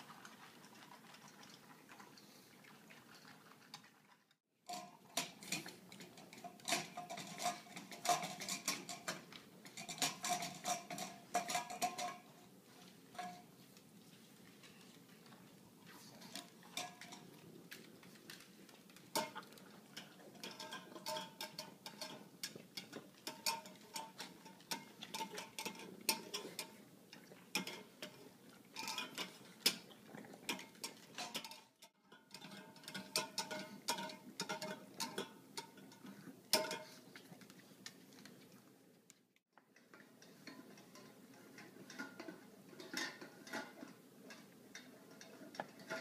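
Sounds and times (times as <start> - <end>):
dogs eating from metal bowls: 0.0 - 46.0.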